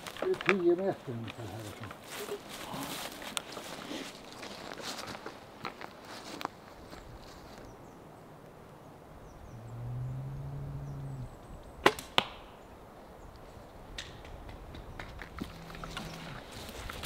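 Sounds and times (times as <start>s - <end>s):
low steady hum: 8.1s - 11.8s.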